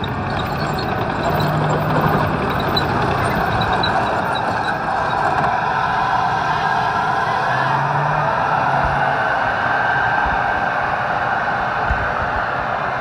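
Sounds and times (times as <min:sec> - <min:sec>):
tank turbine engine running: 0:00.0 - 0:13.0.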